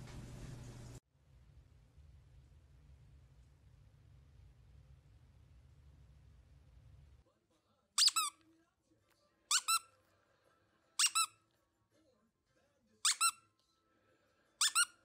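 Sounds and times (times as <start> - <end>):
squeaky dog toy squeaking: 8.0 - 8.4, 9.5 - 10.0, 11.0 - 11.4, 13.0 - 13.5, 14.6 - 15.0.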